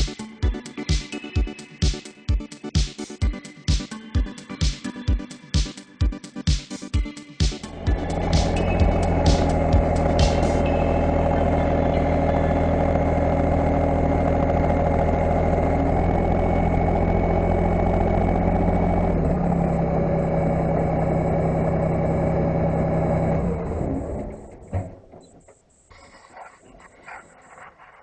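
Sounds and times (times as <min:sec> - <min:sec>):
tractor engine running: 0:07.6 - 0:28.0.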